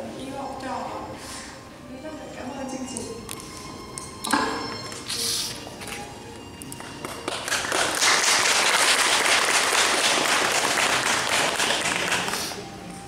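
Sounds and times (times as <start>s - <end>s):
audience applauding: 6.8s - 12.6s.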